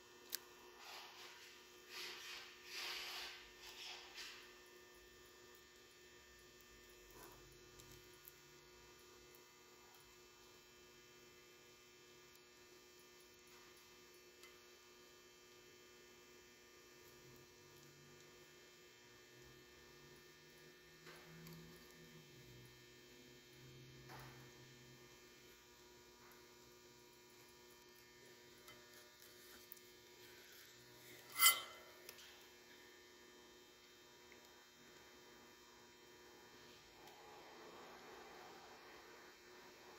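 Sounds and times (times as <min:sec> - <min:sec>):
faint electrical hum: 0:00.0 - 0:39.9
scraping rub: 0:00.8 - 0:04.4, 0:30.4 - 0:32.0
wire rustling: 0:28.9 - 0:32.1
wire twisting handling noise: 0:31.1 - 0:32.3.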